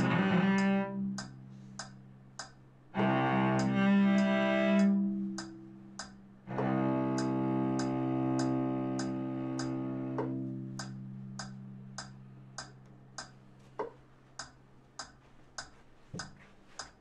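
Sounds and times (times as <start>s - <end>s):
cello low bowed note: 0.0s - 1.5s, 3.0s - 12.0s
metronome ticking: 0.0s - 17.0s.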